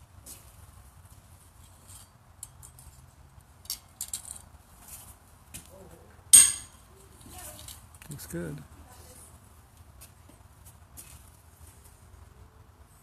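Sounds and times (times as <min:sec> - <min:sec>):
faint metallic horseshoe clinks: 0:06.3 - 0:06.8.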